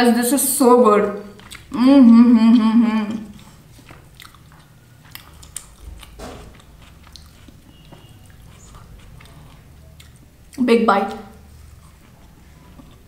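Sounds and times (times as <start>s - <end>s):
quiet chewing with mouth clicks: 1.4s - 1.8s, 3.2s - 10.6s, 11.2s - 13.0s
woman humming mmm: 1.7s - 3.4s.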